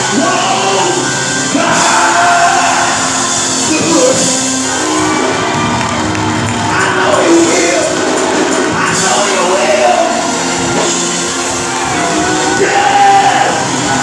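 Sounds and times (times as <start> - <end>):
drums: 0.0 - 14.0
gospel singing: 0.0 - 14.0
congregation clapping: 2.8 - 12.9.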